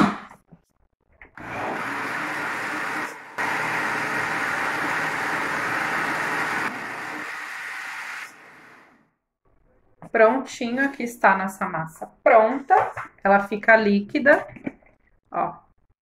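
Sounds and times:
countertop blender running: 1.4s - 8.9s.

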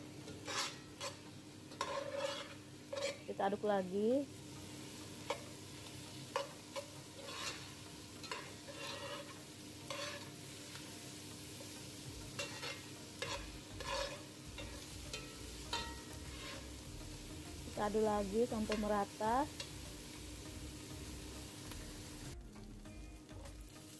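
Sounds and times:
vegetables sizzling in oil: 0.0s - 23.9s
metal spoon scraping pan: 0.3s - 3.3s, 6.3s - 10.4s, 12.4s - 16.7s.

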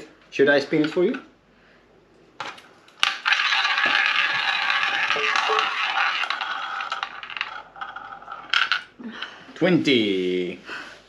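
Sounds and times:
ball rattling in roulette wheel: 2.9s - 9.0s.

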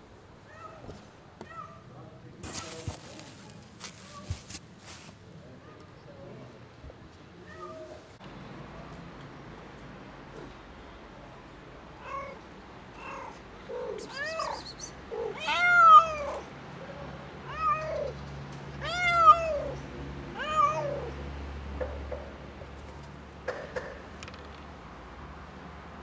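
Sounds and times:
cat meowing: 13.0s - 16.4s, 20.4s - 21.1s.

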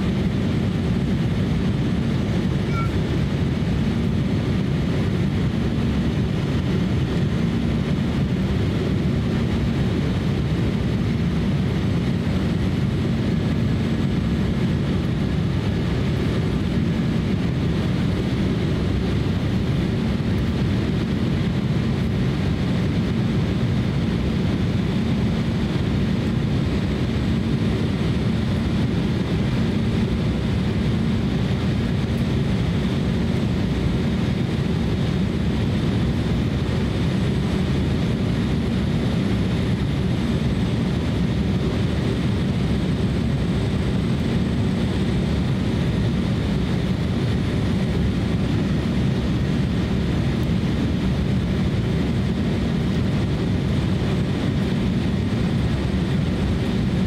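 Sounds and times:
airliner cabin engine rumble: 0.0s - 57.0s.

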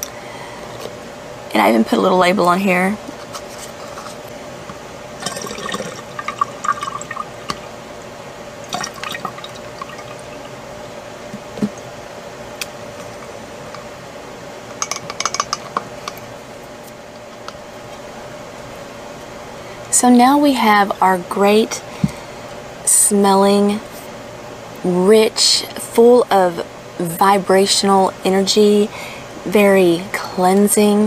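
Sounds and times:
liquid pouring into a bottle: 5.2s - 7.6s, 8.6s - 10.6s.

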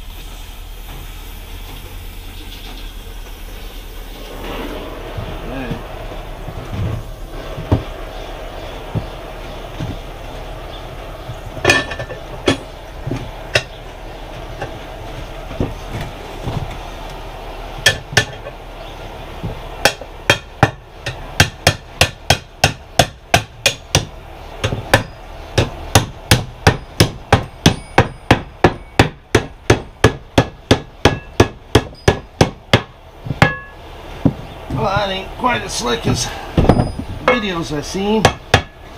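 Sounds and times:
hammer striking steel ring gear: 27.4s - 29.1s, 33.4s - 33.8s.

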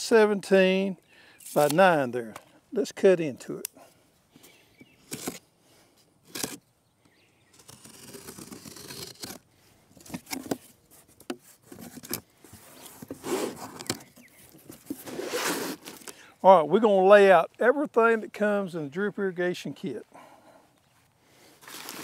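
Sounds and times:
cardboard flaps scraping and rustling: 7.6s - 9.4s, 10.0s - 16.1s, 21.6s - 22.0s
knife slicing packing tape: 7.6s - 9.4s.

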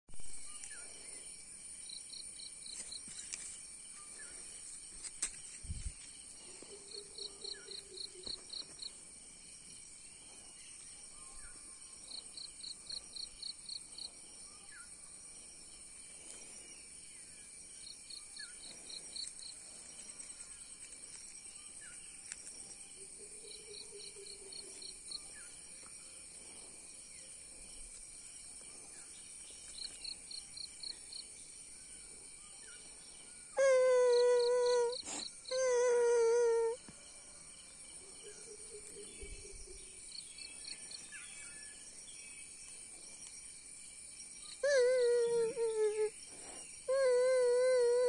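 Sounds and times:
insects buzzing: 0.2s - 48.0s
quick insect chirps: 15.6s - 48.0s.

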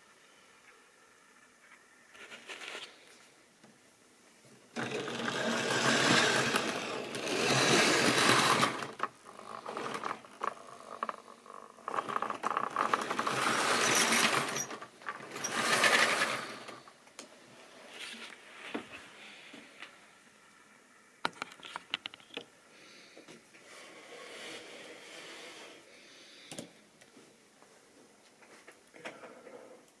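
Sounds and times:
small electric motor whirring: 4.8s - 10.2s
wheels clattering over rail joints: 4.8s - 11.0s, 11.9s - 16.8s.

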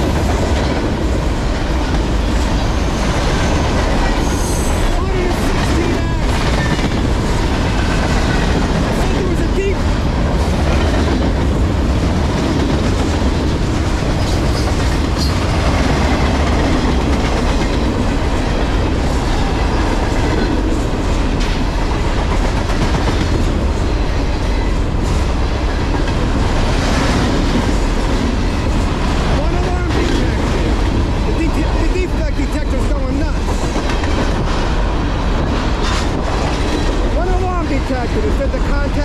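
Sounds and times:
freight train rumbling past: 0.0s - 39.0s
wheels clacking over rail joints: 0.0s - 39.0s.

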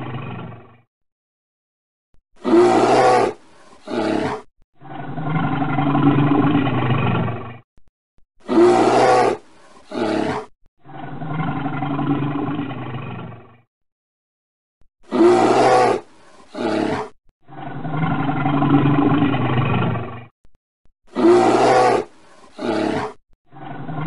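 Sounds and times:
bear growling: 2.4s - 7.4s, 8.4s - 12.9s, 15.0s - 19.8s, 21.1s - 24.0s.

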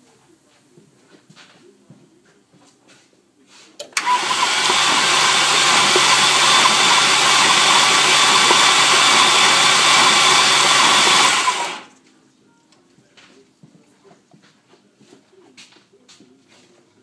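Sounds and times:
starter click: 3.8s - 11.9s
engine cranking over: 4.0s - 11.9s.

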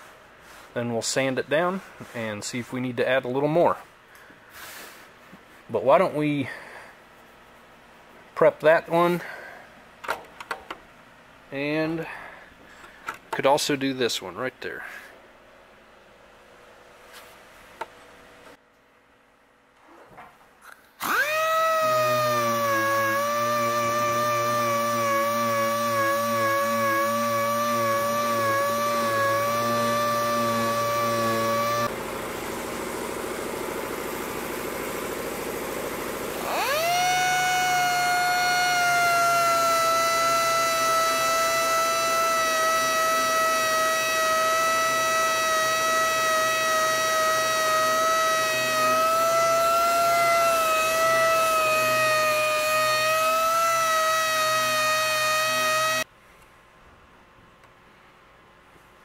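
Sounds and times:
sander whining on metal: 21.0s - 56.1s.

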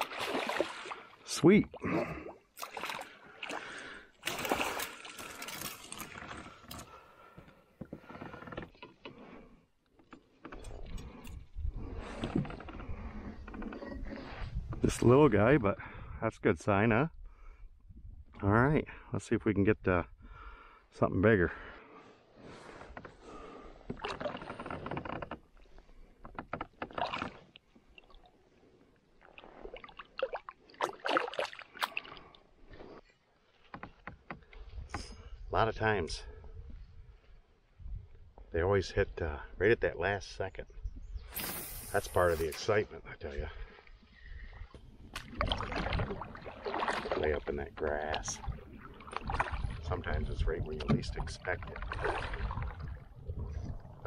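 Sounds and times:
water splashing and dripping: 0.0s - 1.1s, 2.6s - 6.9s, 29.2s - 32.4s
water splashing and sloshing: 0.0s - 15.1s, 21.6s - 35.3s, 43.4s - 54.0s.

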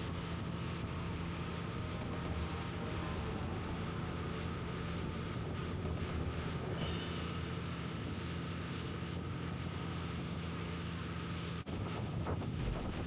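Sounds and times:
engine drone: 0.0s - 13.0s
wind on microphone: 11.7s - 13.0s.

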